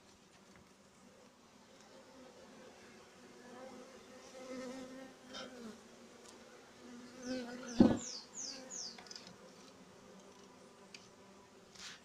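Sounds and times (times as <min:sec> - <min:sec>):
bees buzzing: 0:02.4 - 0:11.6.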